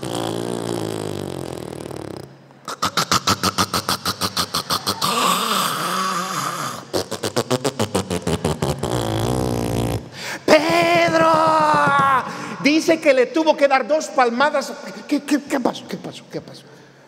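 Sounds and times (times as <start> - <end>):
man imitating snoring: 0.0 - 8.0.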